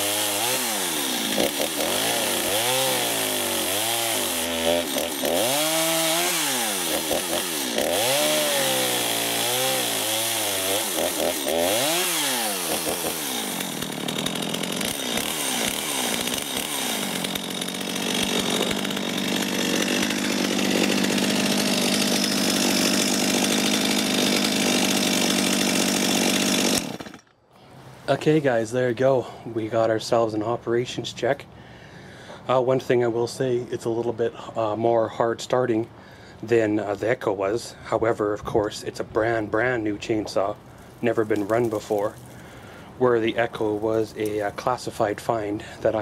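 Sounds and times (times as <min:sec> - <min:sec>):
chainsaw revving: 0:00.0 - 0:27.3, 0:40.2 - 0:46.0.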